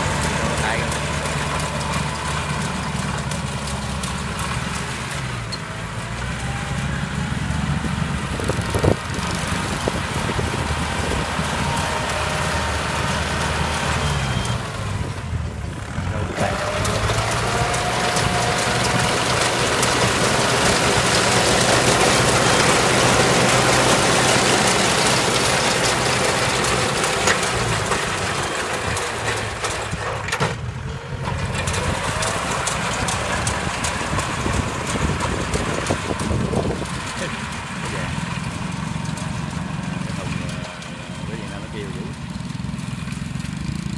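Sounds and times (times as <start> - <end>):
diesel tractor engine running: 0.0 - 43.9
baler chains and rollers clattering: 16.1 - 30.5.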